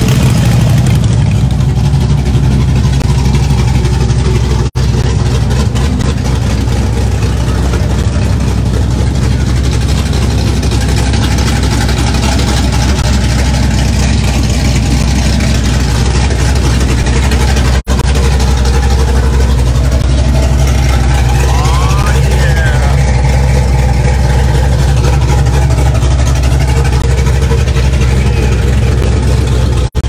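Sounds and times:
car engines idling: 0:00.0 - 0:30.0
outdoor crowd noise: 0:00.0 - 0:30.0.

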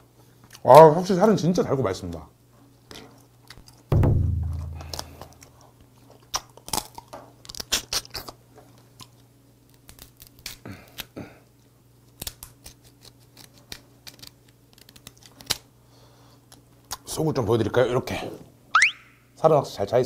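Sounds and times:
chewing: 0:02.9 - 0:03.9, 0:04.9 - 0:09.3
crab shell cracking: 0:03.4 - 0:08.4, 0:09.0 - 0:11.2, 0:12.1 - 0:15.7.

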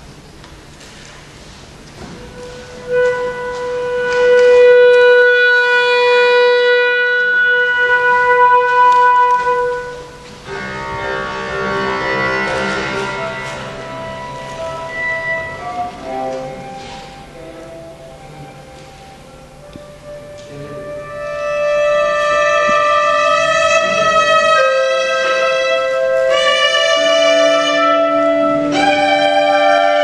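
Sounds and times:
chamber ensemble flutes and strings: 0:02.0 - 0:30.0
flute long note: 0:02.0 - 0:30.0.

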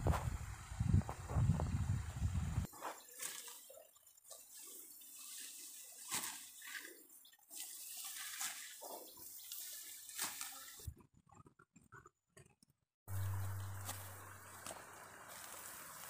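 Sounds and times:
dry rice stalks rustling: 0:02.6 - 0:10.9, 0:13.1 - 0:16.0
light snaps of stalks: 0:13.8 - 0:16.0.

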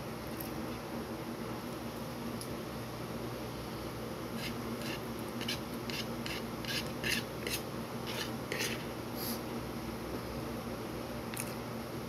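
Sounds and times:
metal utensil scraping bowl: 0:04.4 - 0:08.9.

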